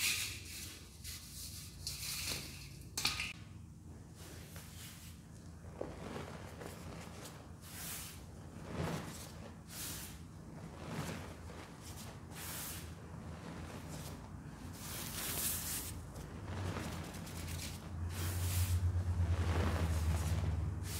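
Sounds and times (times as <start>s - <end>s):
hands squishing powder: 4.1s - 20.9s.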